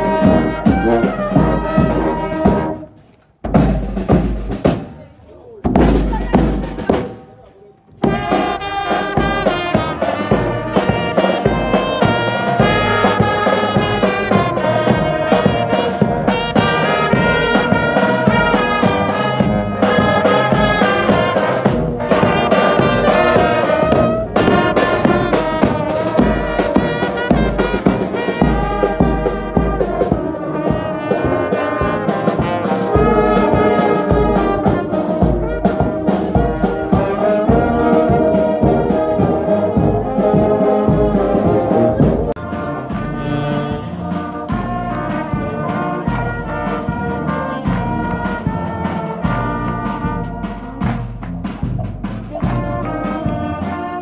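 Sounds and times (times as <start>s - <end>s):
bass drum: 0.0s - 2.8s, 3.4s - 54.0s
snare drum: 0.0s - 7.3s, 8.0s - 54.0s
brass instruments: 0.0s - 54.0s.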